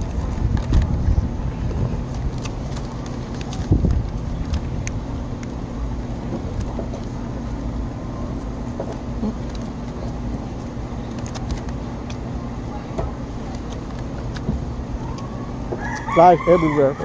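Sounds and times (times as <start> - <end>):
low mechanical rumble and hum: 0.0 - 17.0.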